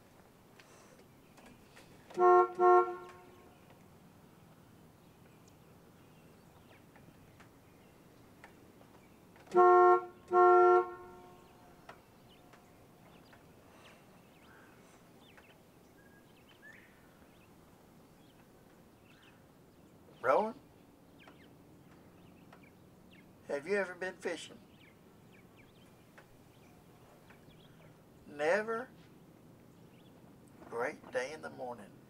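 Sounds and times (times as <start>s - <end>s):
bus horn honking: 2.1s - 3.6s, 9.5s - 12.4s.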